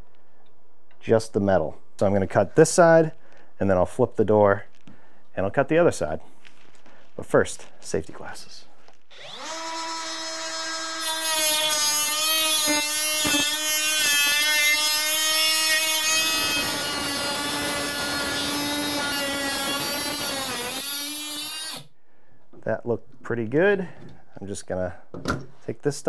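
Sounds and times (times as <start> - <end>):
cut-off tool motor whining: 9.1 - 21.9.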